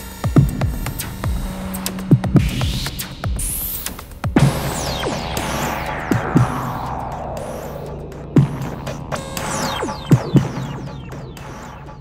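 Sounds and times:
electronic music with deep thumps: 0.0 - 12.0
high rising sweep: 4.4 - 12.0.

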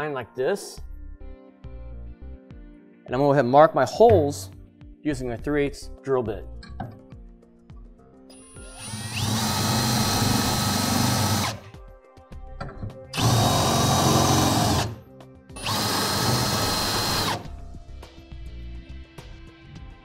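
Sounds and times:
cordless drill whining on steel: 8.3 - 11.7, 13.2 - 15.0, 15.6 - 17.5.

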